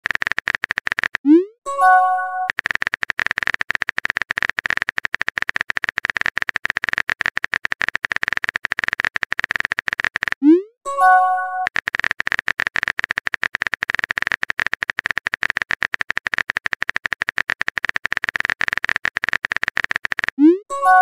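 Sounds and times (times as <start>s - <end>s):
message chime: 10.9s - 11.7s.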